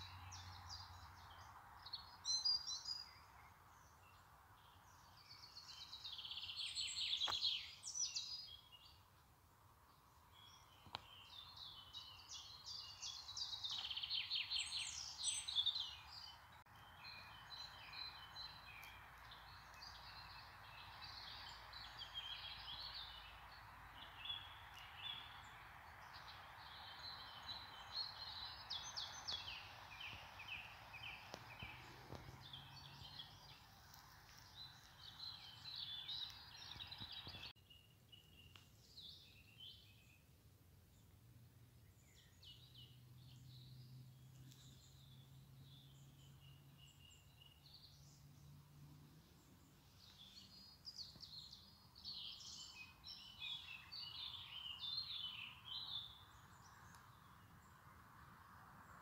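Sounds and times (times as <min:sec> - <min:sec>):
birds singing and trilling: 0:00.0 - 0:09.1, 0:09.9 - 0:40.3, 0:41.8 - 0:57.9
faint steady hiss: 0:00.0 - 0:42.2.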